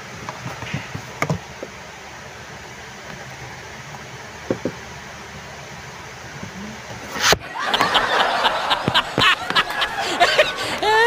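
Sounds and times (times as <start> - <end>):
faint steady hiss: 0.0 - 11.0
high-pitched laughter-like sounds: 7.4 - 11.0.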